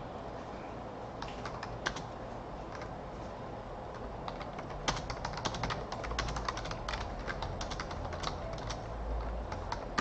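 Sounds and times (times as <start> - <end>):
keyboard typing: 1.2 - 3.0, 4.0 - 10.0.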